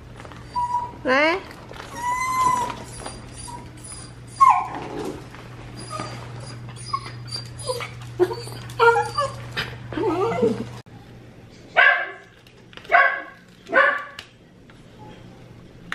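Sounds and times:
dog yipping and whining: 0.4s - 1.0s, 1.9s - 5.0s, 5.8s - 10.7s
dog yelp: 1.9s - 4.8s.

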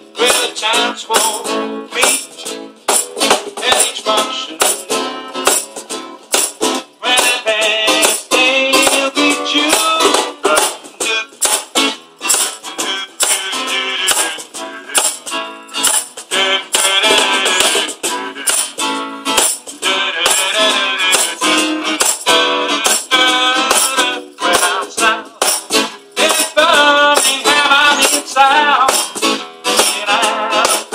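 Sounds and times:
man singing: 0.0s - 2.6s, 3.5s - 5.0s, 7.0s - 19.0s, 19.6s - 30.9s
strummed acoustic guitar: 0.0s - 30.9s
tambourine shaking: 0.2s - 30.9s
cajon slapped by hand: 2.9s - 4.0s, 4.6s - 4.9s, 5.5s - 7.4s, 8.0s - 13.5s, 15.8s - 18.8s, 22.0s - 24.0s, 25.4s - 26.6s, 28.9s - 30.0s, 30.6s - 30.9s.

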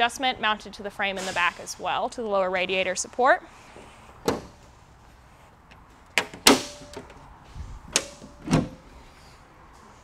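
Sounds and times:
car hood latch clunks and clicks: 7.9s - 8.9s.

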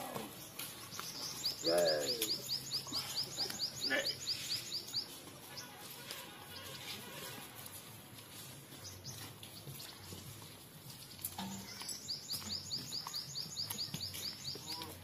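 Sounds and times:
bird chirping rapidly: 0.9s - 5.8s, 11.8s - 14.7s.

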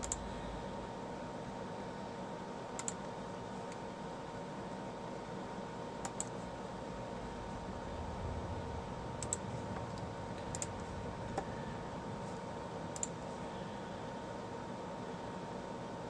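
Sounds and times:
computer mouse clicks: 0.0s - 0.3s, 2.7s - 3.8s, 6.0s - 6.4s, 9.2s - 9.4s, 10.4s - 10.7s, 12.9s - 13.2s
low room tone hum: 0.0s - 16.0s.

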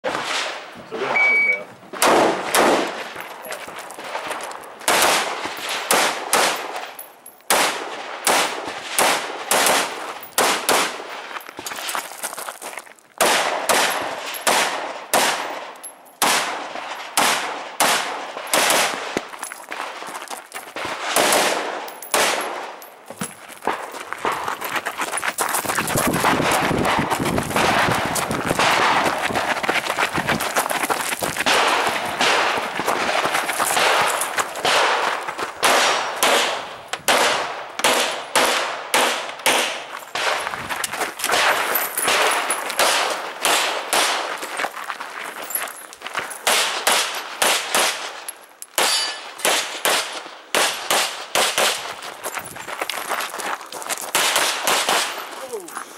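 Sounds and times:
rapid gunfire: 2.0s - 2.9s, 4.9s - 6.6s, 26.2s - 29.5s, 31.4s - 40.4s.

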